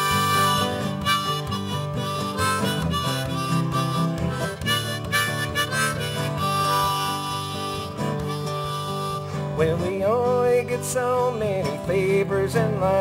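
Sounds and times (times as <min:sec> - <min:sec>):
harmonica melody: 0:00.0 - 0:11.7
guitar backing: 0:00.0 - 0:13.0.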